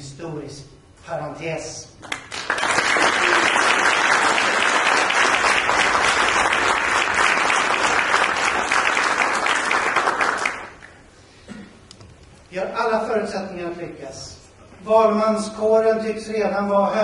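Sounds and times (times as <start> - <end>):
audience applauding: 2.0 - 11.0.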